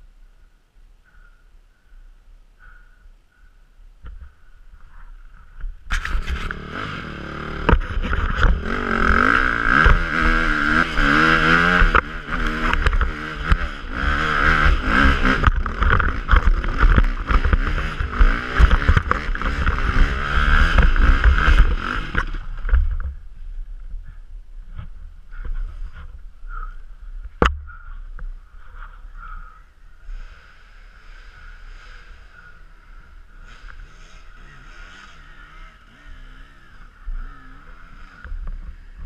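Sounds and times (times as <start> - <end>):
dirt bike engine revving: 5.9 - 23.2, 30.2 - 39.0
sharp knocks from bike: 14.4 - 23.2.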